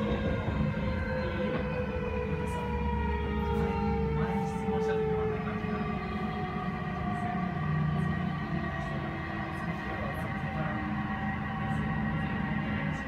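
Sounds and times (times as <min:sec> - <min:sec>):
train wheels rumbling on rail: 0:00.0 - 0:04.8
whining traction motors: 0:00.0 - 0:13.0.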